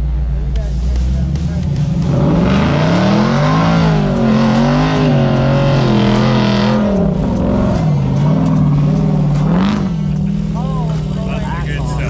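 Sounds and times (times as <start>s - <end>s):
truck engine revving: 0.0s - 12.0s.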